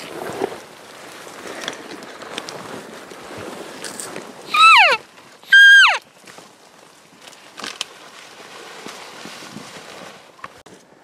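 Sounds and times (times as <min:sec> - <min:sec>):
elk mew call: 0:04.5 - 0:06.0.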